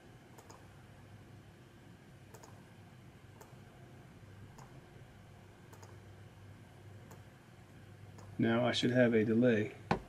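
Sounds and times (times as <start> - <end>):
computer mouse clicks: 0.3 - 0.7, 2.3 - 2.6, 3.4 - 3.6, 4.5 - 4.8, 5.7 - 6.0, 7.0 - 7.3.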